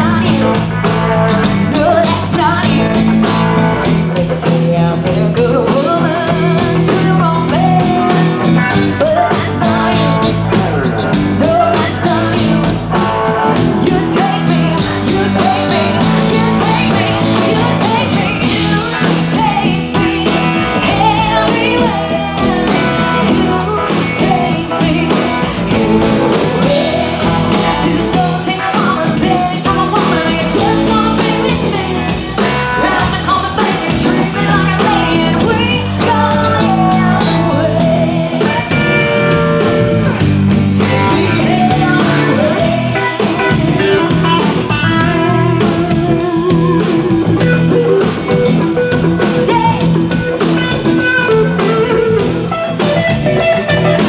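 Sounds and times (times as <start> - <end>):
bass guitar: 0.0 - 54.0
drum kit: 0.0 - 54.0
electric guitars: 0.0 - 54.0
woman singing: 0.0 - 54.0.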